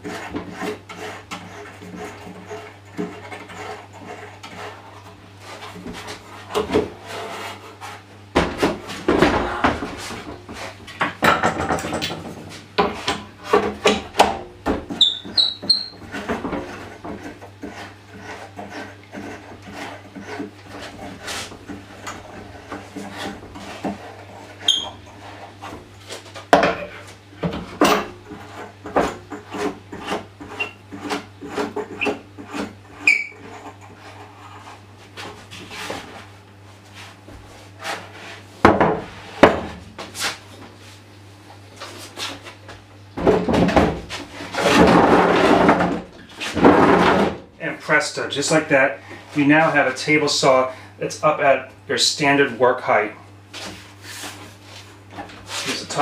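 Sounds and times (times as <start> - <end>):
short high squeaks: 15.0 - 16.0, 24.6 - 25.0, 33.0 - 33.4.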